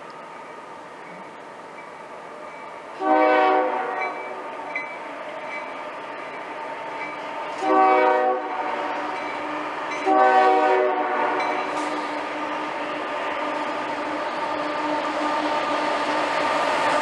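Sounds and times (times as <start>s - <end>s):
locomotive air horn blasts: 3.0s - 4.7s, 7.6s - 12.7s.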